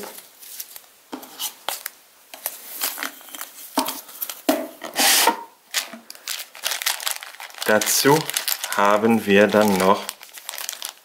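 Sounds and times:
cloth bag rustling: 0:05.7 - 0:11.0.

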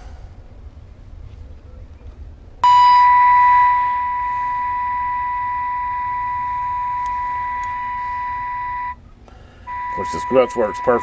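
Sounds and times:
radio speaker test tone: 0:02.6 - 0:09.0, 0:09.7 - 0:11.0.

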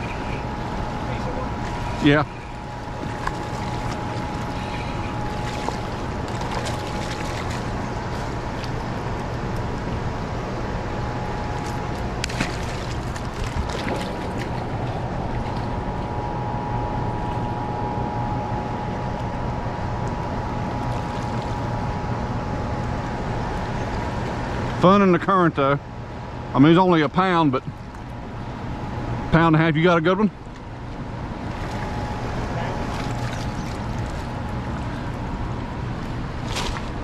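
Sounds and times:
steady hum: 0:00.0 - 0:37.0
short splashes: 0:01.5 - 0:09.4, 0:11.4 - 0:16.2, 0:20.8 - 0:21.6, 0:30.6 - 0:35.2, 0:36.3 - 0:37.0
river water rushing: 0:11.4 - 0:16.1.

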